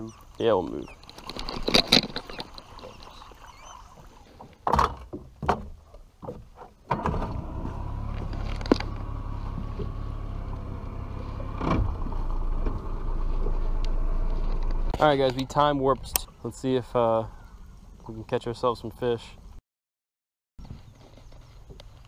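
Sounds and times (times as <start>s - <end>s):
boat motor running: 7.0s - 15.0s.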